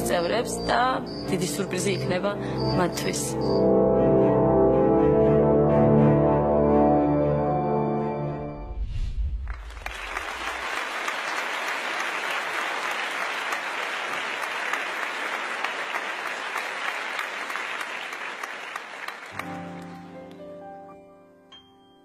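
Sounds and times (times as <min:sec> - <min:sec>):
studio audience applauding: 0:09.5 - 0:20.2.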